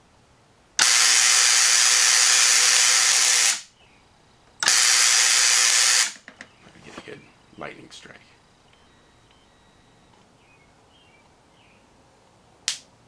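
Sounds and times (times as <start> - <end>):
tesla coil sparks buzzing: 0.8 - 3.7, 4.6 - 6.2
steady low hum: 6.5 - 12.6.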